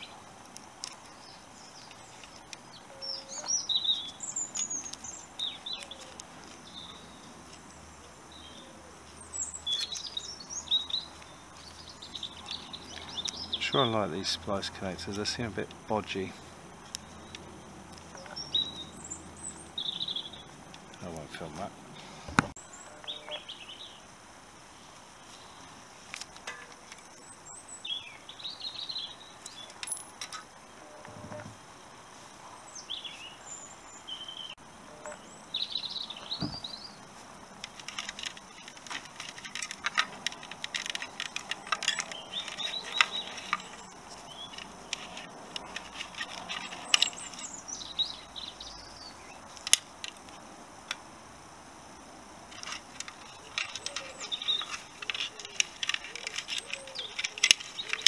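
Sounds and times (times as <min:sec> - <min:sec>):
small birds chirping: 0:00.0 - 0:58.0
plastic connectors clicking: 0:00.4 - 0:01.2, 0:37.6 - 0:47.5, 0:49.5 - 0:51.0, 0:52.5 - 0:58.0.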